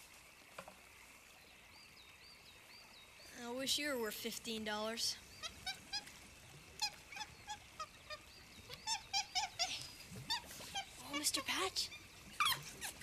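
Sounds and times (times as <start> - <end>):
monkeys chirping: 5.2 - 13.0.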